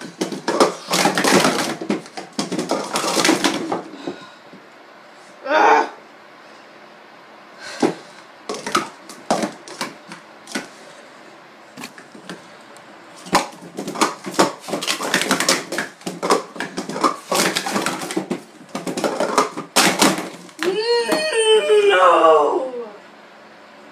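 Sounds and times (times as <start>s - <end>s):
plastic cups clacking: 0.0s - 3.9s, 13.2s - 20.6s.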